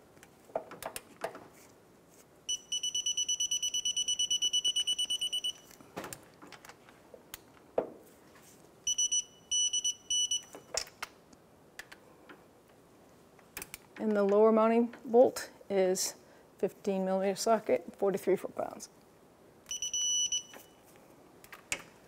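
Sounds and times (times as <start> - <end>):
torque wrench high beeps: 2.5 - 5.7, 8.9 - 10.6, 19.7 - 20.7.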